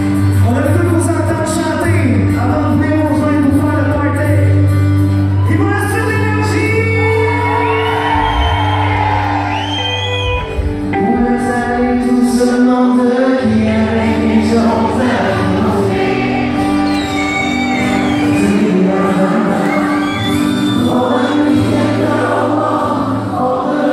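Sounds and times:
live band playing a song: 6.6 - 22.8
male lead vocal: 10.9 - 23.9.

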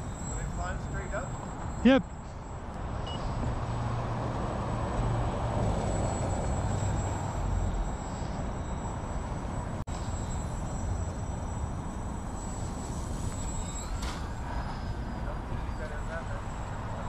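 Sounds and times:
model plane motor buzzing: 3.4 - 16.0.

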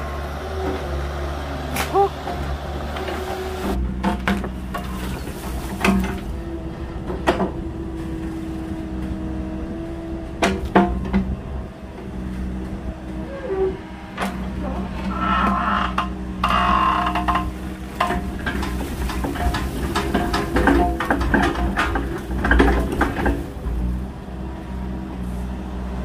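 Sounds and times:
diesel engine running: 0.0 - 26.0
metallic clanks and knocks: 2.2 - 6.4, 10.4 - 11.4, 13.3 - 24.0.

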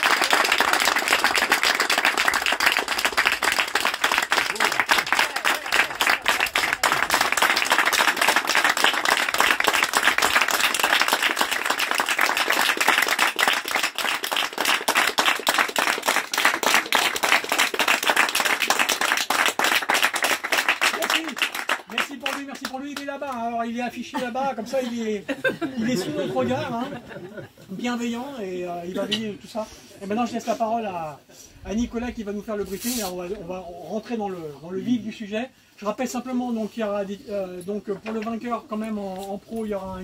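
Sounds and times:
people clapping: 0.0 - 23.7.

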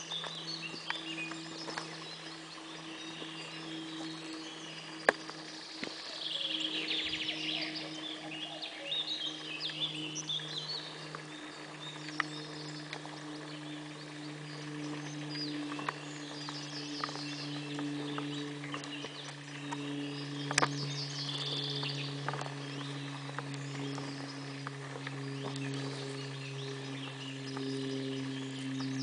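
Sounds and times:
small birds singing: 0.0 - 29.0
steady low hum: 0.0 - 29.0
faint clicks: 20.4 - 26.0.

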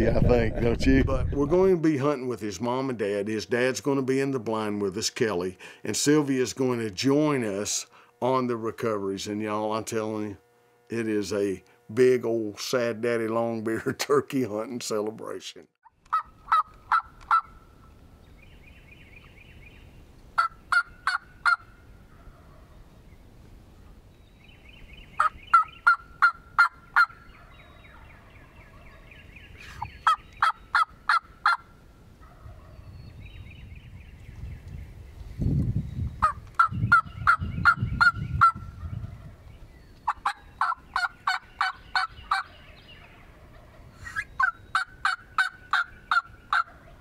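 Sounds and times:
low rumbling noise: 0.0 - 1.9
turkey gobbles: 15.8 - 17.6, 20.4 - 22.8, 25.2 - 32.8, 36.2 - 39.4, 40.0 - 47.0
turkey yelping: 15.8 - 17.8, 20.4 - 22.8, 25.2 - 32.8, 36.2 - 39.3, 40.0 - 47.0.

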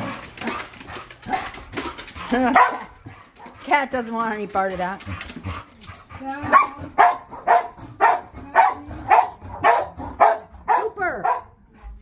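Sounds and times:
dog barking: 2.5 - 2.9, 6.4 - 11.6.

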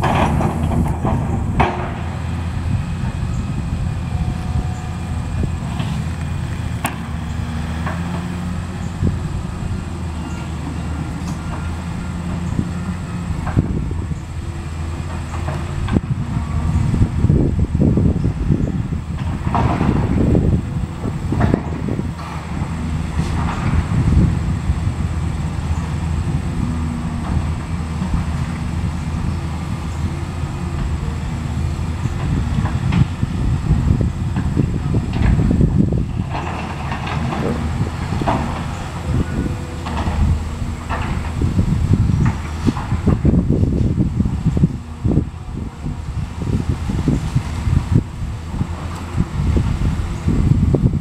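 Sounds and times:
diesel engines running: 0.0 - 51.0
sharp crack: 6.2 - 7.2.

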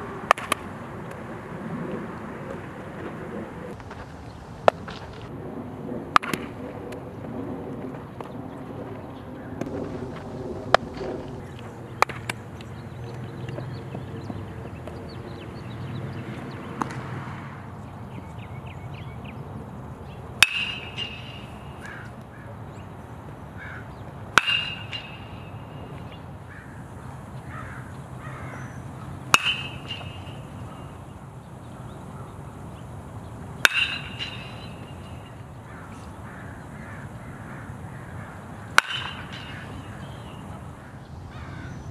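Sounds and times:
birds chirping faintly: 17.7 - 41.9
metal bat pinging ball: 20.4 - 21.9, 24.3 - 26.2, 29.3 - 31.0, 33.6 - 35.4, 38.7 - 40.4
sharp knocks of ball: 24.4 - 25.5, 29.3 - 30.4.

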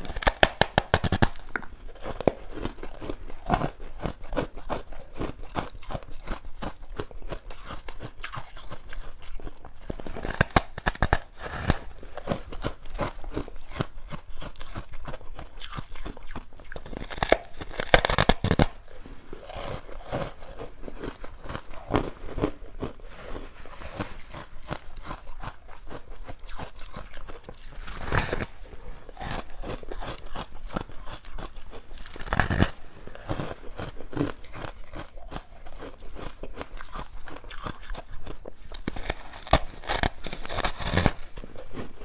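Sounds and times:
loud crunches: 0.0 - 38.0, 38.7 - 42.0
chewing frozen ice treat: 0.0 - 42.0.

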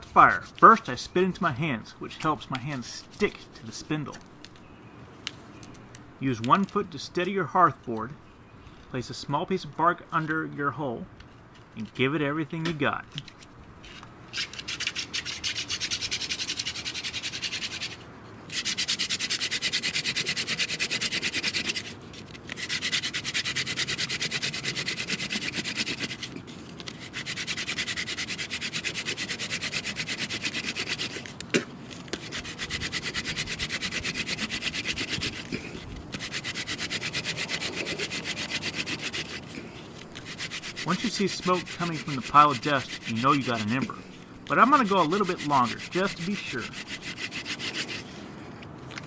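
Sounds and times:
hand drill spindle grinding: 22.5 - 31.3, 32.1 - 43.9, 44.5 - 48.1.

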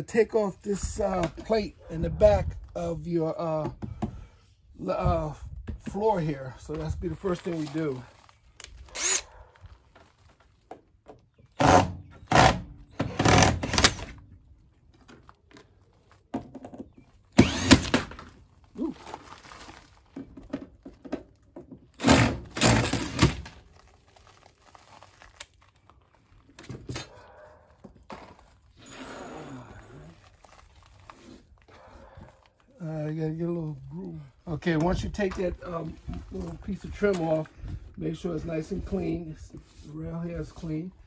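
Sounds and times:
cordless drill driving screws: 8.9 - 9.3, 11.6 - 14.1, 17.4 - 18.2.

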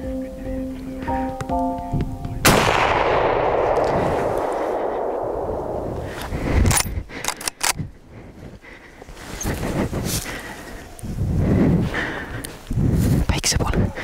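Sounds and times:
rifle shot echoing: 2.4 - 6.8.

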